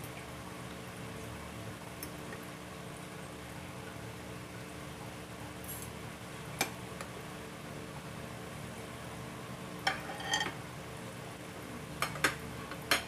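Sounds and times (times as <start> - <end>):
cutlery clinking on plate: 9.9 - 10.6.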